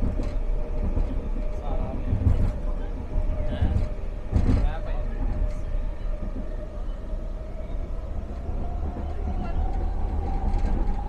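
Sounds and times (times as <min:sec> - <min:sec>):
train rumble: 0:00.0 - 0:11.0.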